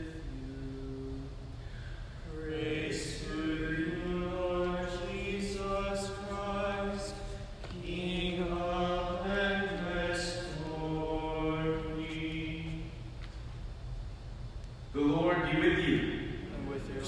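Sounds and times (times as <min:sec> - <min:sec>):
man chanting: 0:02.3 - 0:12.9, 0:15.0 - 0:17.0.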